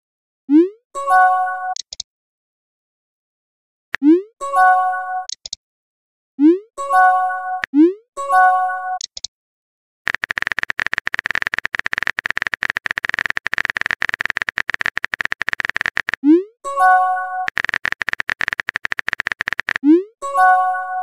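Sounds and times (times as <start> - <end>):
rapid typing clicks: 10.1 - 16.2, 17.5 - 19.8
message pop and chime: 16.2 - 17.5, 19.8 - 21.0.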